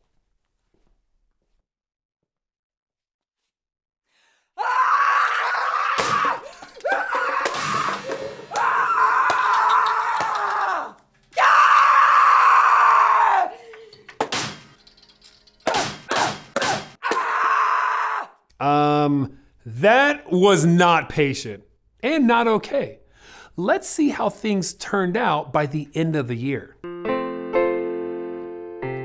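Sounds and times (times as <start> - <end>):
sharp whacks or knocks: 14.2 - 14.7, 15.7 - 17.0.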